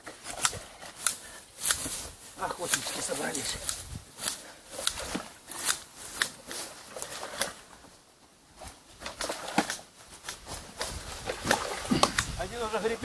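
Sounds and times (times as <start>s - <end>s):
rake scraping through leaves: 0.1s - 7.6s.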